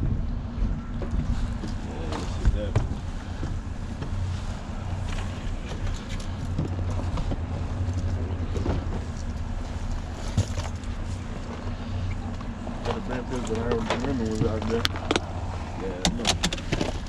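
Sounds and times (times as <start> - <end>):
outboard motor idling: 0.0 - 17.0
fishing gear clicks and knocks: 5.1 - 15.4.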